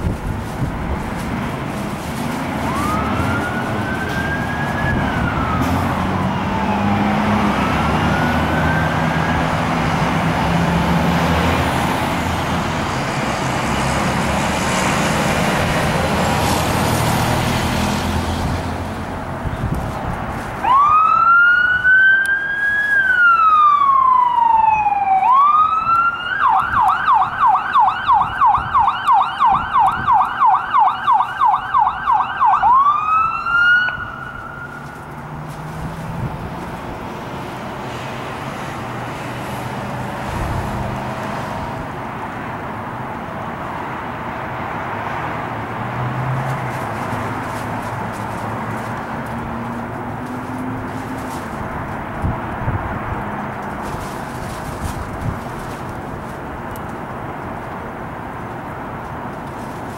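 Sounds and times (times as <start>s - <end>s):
siren wailing and yelping: 2.6s - 9.6s, 20.7s - 34.8s.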